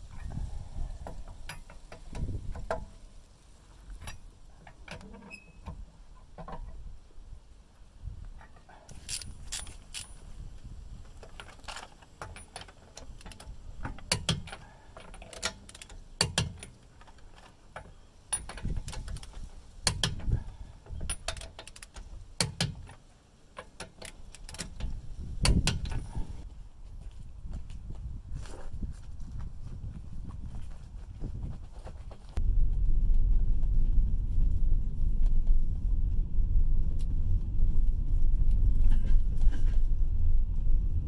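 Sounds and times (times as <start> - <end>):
lug wrench clicking on wheel nuts: 8.9 - 10.2, 11.2 - 17.2, 17.8 - 23.0, 23.6 - 26.3.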